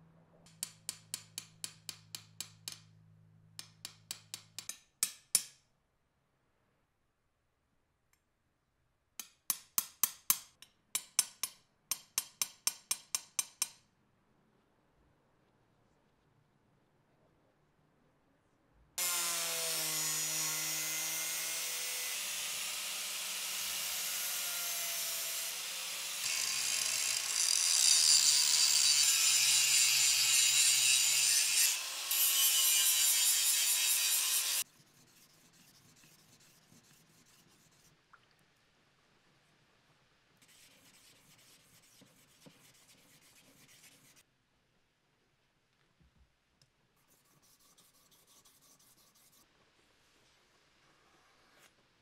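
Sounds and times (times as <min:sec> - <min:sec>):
angle grinder grinding steel: 0:19.0 - 0:34.6.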